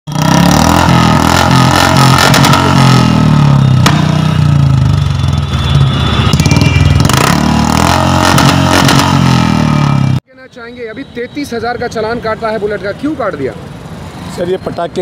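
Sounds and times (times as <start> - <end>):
exhaust bangs: 0.1 - 10.2
motorcycle engine revving: 0.1 - 10.2.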